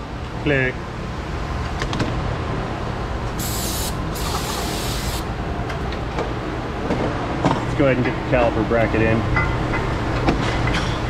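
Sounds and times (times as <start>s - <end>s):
aerosol spray hissing: 3.4s - 5.3s.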